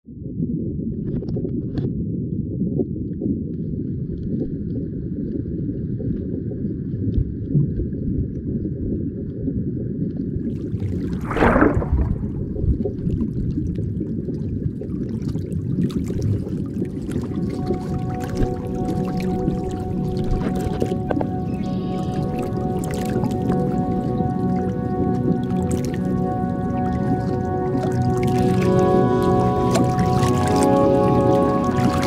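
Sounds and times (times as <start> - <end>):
loud whoosh: 11.2 - 12.9.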